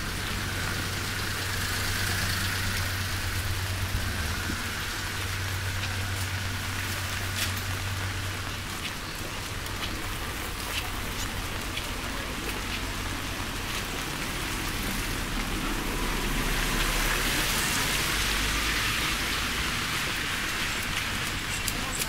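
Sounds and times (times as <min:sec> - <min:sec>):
steady rain hiss: 0:00.0 - 0:22.0
raindrop ticks: 0:00.2 - 0:15.6, 0:16.5 - 0:22.0.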